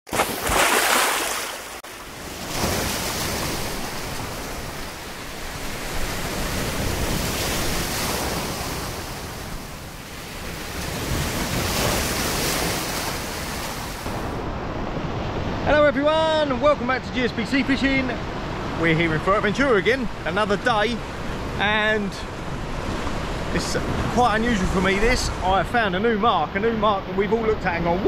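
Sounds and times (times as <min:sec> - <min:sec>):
sea waves breaking: 0:00.1 - 0:28.0
wind buffeting microphone: 0:22.3 - 0:25.9.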